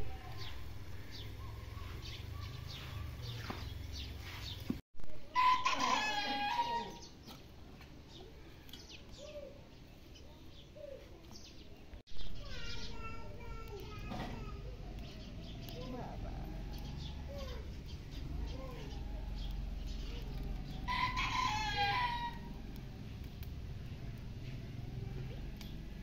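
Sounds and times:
small birds chirping: 0.0s - 4.8s, 5.6s - 26.0s
rooster crowing: 5.4s - 7.0s, 20.8s - 22.6s.

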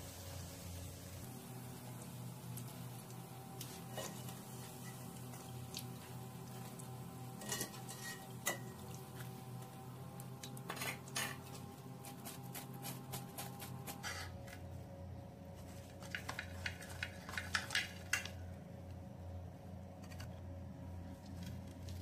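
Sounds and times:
steady low hum: 0.0s - 22.0s
wire skimmer clinking on pot: 7.4s - 8.9s.

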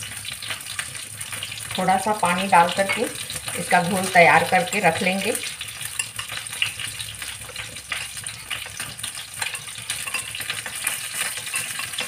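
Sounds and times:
cheese sizzling in oil: 0.0s - 12.0s
spoon stirring in ceramic bowl: 5.8s - 12.0s.

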